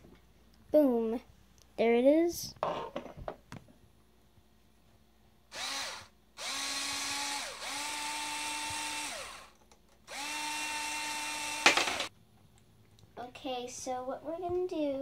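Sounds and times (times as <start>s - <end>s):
power drill whining: 5.5s - 12.1s.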